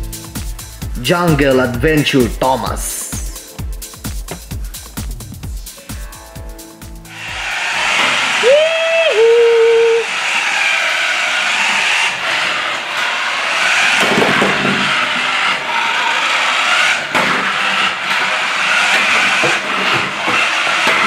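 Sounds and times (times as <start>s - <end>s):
toy car motor whirring: 7.1s - 21.0s.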